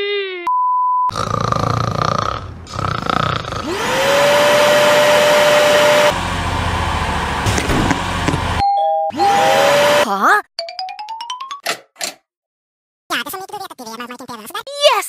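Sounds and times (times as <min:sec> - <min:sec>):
rough whirring noise: 0:02.7 - 0:08.6
vacuum cleaner motor whining: 0:03.6 - 0:08.6, 0:09.2 - 0:10.0.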